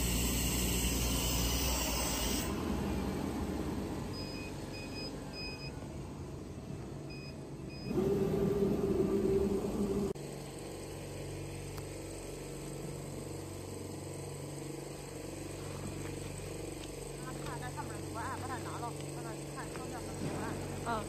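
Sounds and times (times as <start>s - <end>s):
machine hiss and hum: 0.0s - 4.0s, 7.9s - 21.0s
cutting machine motor humming: 7.9s - 21.0s.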